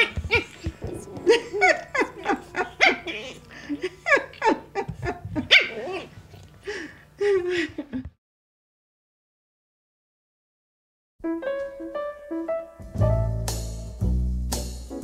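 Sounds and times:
puppies yapping: 0:00.0 - 0:03.4, 0:05.4 - 0:06.1.

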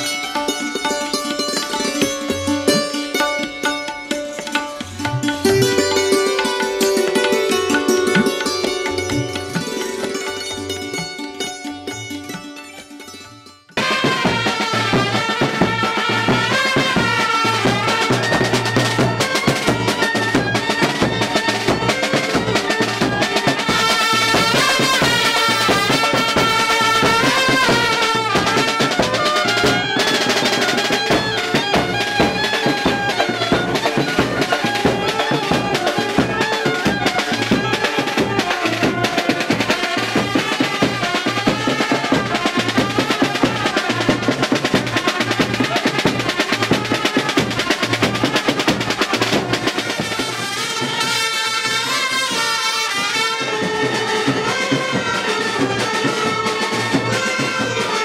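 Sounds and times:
fast steady drumming: 0:00.0 - 0:11.2, 0:13.8 - 0:58.0
trumpets playing melody: 0:13.8 - 0:58.0.

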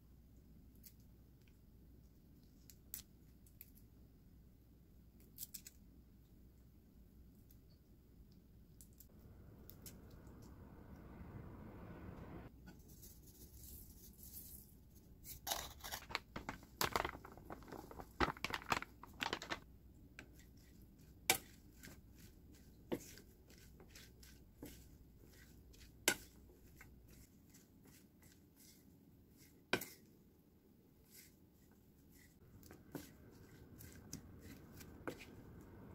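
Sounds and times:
crinkling and rustling in bowl: 0:12.8 - 0:30.2.

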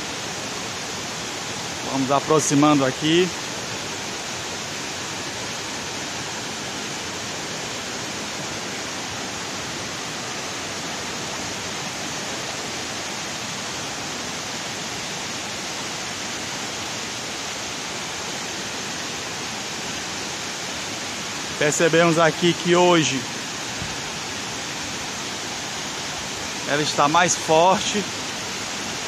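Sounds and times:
water rushing down spillway: 0:00.0 - 0:29.0.

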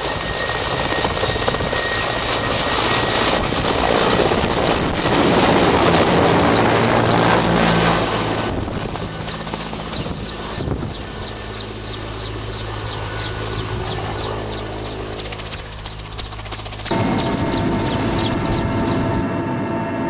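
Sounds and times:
helicopter passing overhead: 0:00.0 - 0:20.0.

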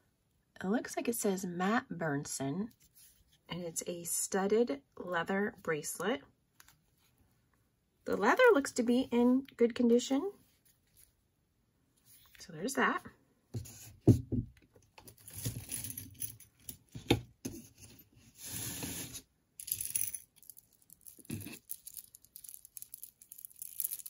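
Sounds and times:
jewelry rustling and clicking: 0:14.7 - 0:17.2, 0:19.6 - 0:24.0.

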